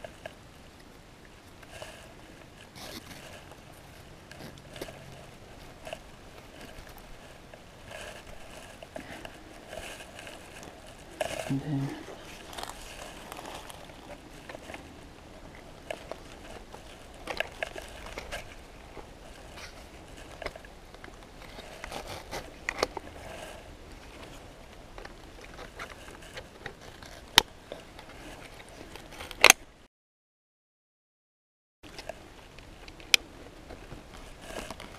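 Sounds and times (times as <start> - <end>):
plastic clicks scrapes and rustles: 1.6 - 29.6, 31.9 - 34.9.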